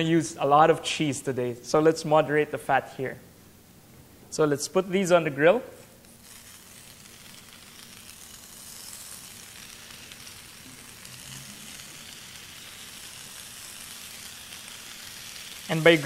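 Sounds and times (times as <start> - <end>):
bacon sizzling on a grill pan: 6.0 - 16.0.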